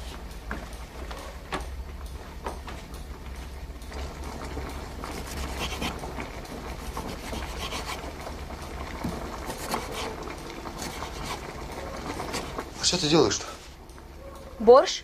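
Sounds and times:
vegetables grated on hand grater: 5.1s - 8.2s, 9.3s - 12.8s.

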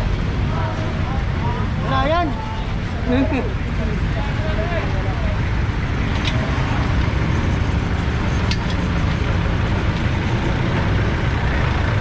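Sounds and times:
vehicle engine idling: 0.0s - 12.0s
sharp clicks: 6.0s - 7.1s, 8.4s - 10.1s.

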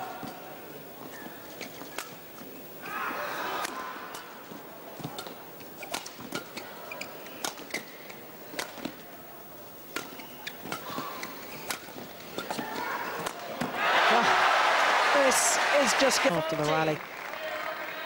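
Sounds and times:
hall background noise: 0.0s - 18.0s
shoe squeaks: 6.2s - 8.0s, 10.0s - 13.0s.

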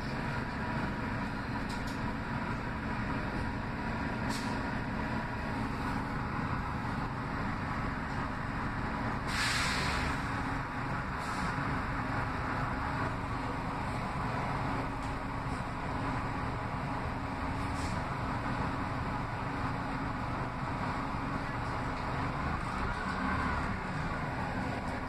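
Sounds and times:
bus engine droning: 0.0s - 25.0s
air-brake hiss: 4.3s - 4.7s, 9.2s - 10.3s, 11.2s - 11.6s, 17.6s - 18.1s.

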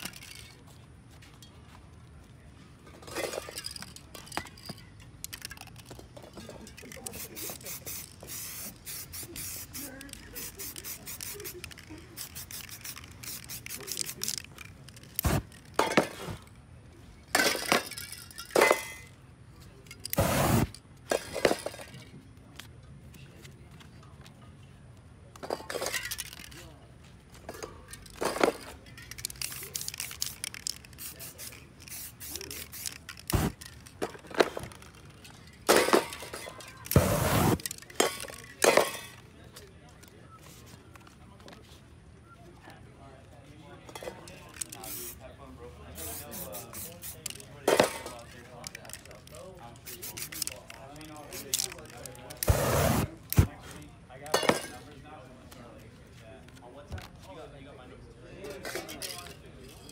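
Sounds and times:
spray paint can hissing: 7.0s - 15.7s, 20.0s - 20.8s, 29.1s - 33.9s, 36.8s - 37.8s, 44.5s - 45.2s, 46.0s - 47.5s, 49.8s - 50.6s, 51.2s - 53.5s
spray cans knocking: 20.2s - 20.7s, 28.0s - 34.5s, 35.7s - 39.1s.

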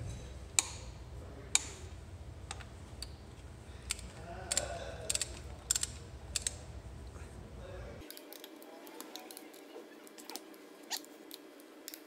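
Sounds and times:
torque wrench clicks: 3.9s - 6.6s.

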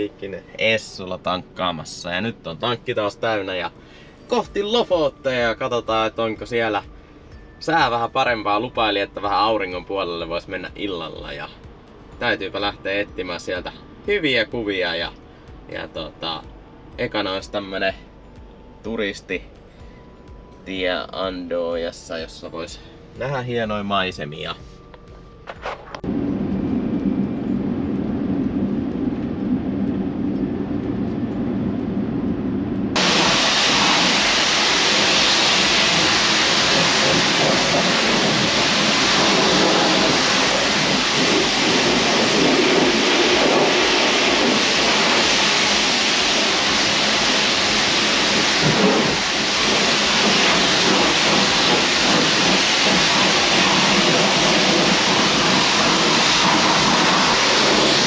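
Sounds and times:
vehicle road rumble: 24.7s - 58.0s
pressure washer jet hissing: 33.0s - 58.0s.

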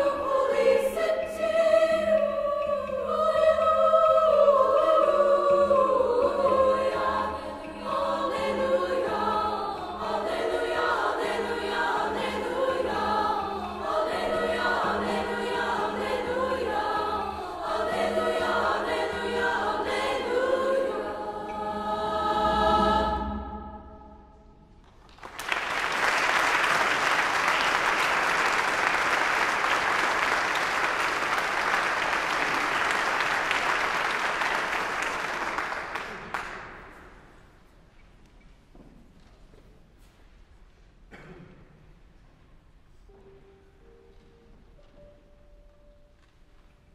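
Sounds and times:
women's chorus singing: 0.0s - 24.4s
audience applauding: 25.0s - 36.8s.

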